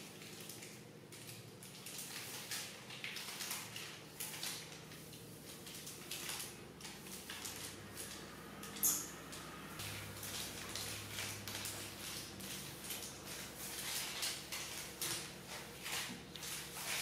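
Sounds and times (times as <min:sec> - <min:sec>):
broom swishing on floor: 0:11.9 - 0:17.0.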